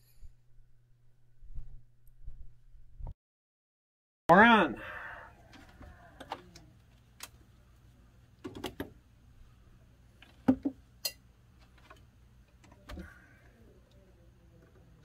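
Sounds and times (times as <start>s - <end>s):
faint low hum: 11.2s - 15.0s.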